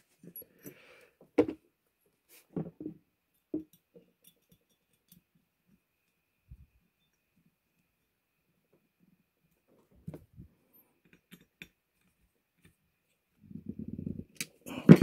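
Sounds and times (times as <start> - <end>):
metal tools clicking and knocking: 3.4 - 5.3, 11.0 - 11.8.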